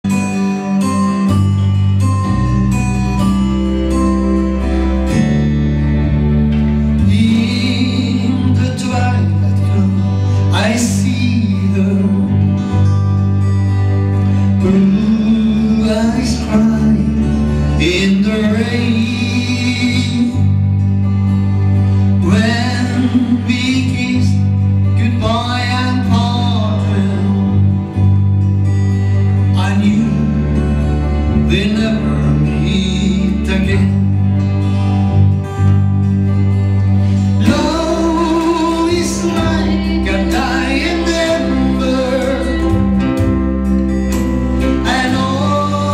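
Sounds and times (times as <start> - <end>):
guitar playing: 0.0 - 45.9
steady bass line: 0.0 - 45.9
person singing: 6.2 - 28.3, 29.4 - 34.7, 37.0 - 45.9.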